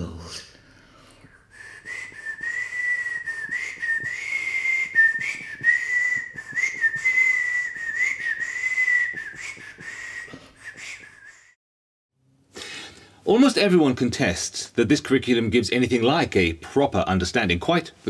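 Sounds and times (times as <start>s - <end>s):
person whistling high note: 1.4s - 11.6s.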